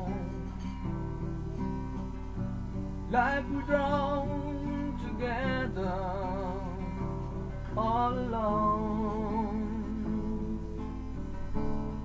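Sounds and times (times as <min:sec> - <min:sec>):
man singing with vibrato: 0:00.0 - 0:00.7, 0:03.0 - 0:11.3
guitar accompaniment: 0:00.0 - 0:12.0.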